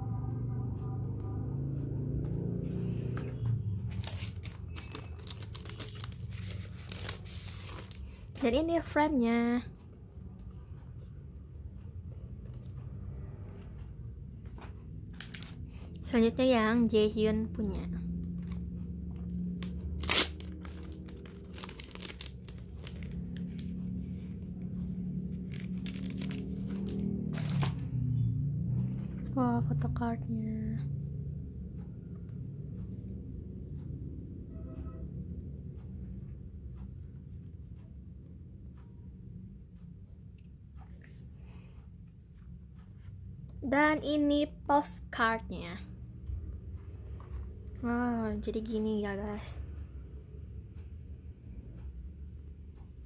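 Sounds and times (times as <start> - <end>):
steady low rumble: 0.0 - 53.0
packaging crinkling and rustling: 3.9 - 8.1, 15.2 - 15.6, 19.6 - 23.7, 25.4 - 27.8
packaging ripping: 4.0 - 8.0, 19.7 - 23.2, 25.5 - 27.8.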